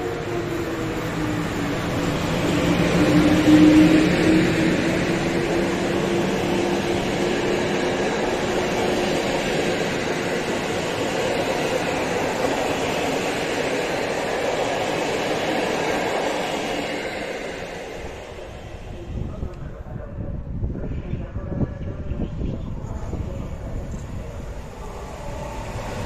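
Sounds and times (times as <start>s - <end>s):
electric locomotive hum: 0.0s - 26.0s
train wheels rumbling on rails: 0.0s - 26.0s.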